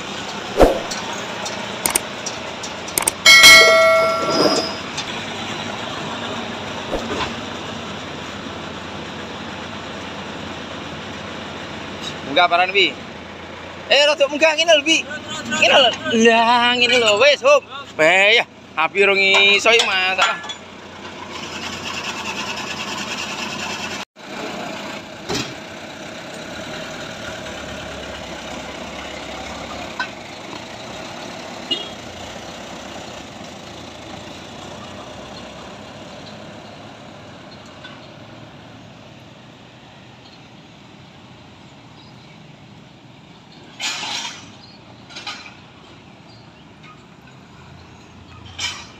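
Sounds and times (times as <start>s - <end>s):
truck engine driving off: 0.0s - 13.9s, 20.6s - 41.9s.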